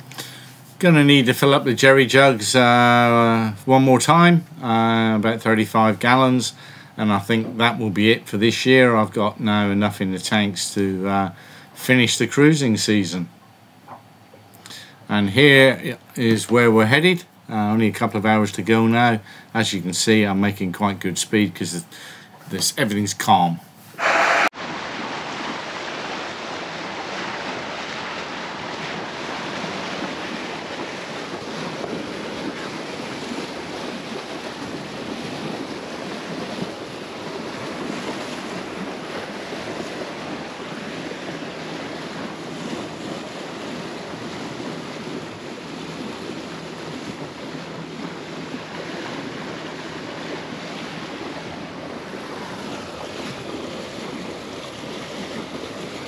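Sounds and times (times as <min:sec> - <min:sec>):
boat engine low hum: 0:00.0 - 0:56.0
water rushing along hull: 0:00.0 - 0:56.0
wind buffeting microphone: 0:25.8 - 0:56.0.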